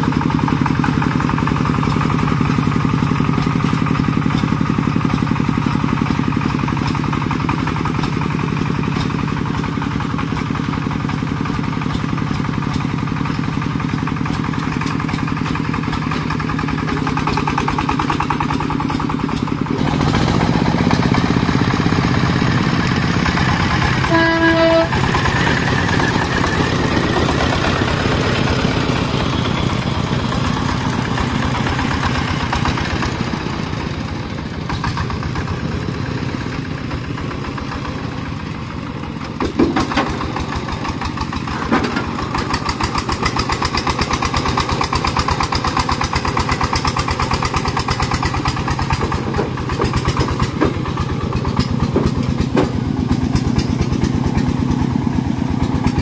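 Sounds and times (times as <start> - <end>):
single-cylinder diesel engine running: 0.0 - 56.0
short horn toot: 24.0 - 25.0.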